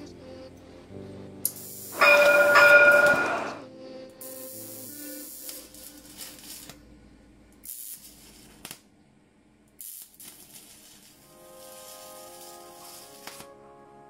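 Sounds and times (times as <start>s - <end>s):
arc welding crackle: 1.4s - 3.5s, 4.2s - 6.8s, 7.6s - 8.9s, 9.7s - 13.6s.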